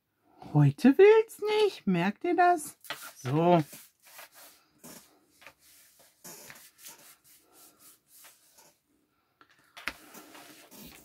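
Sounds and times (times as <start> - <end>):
paper and card rubbing: 2.7 - 8.8, 9.8 - 11.0.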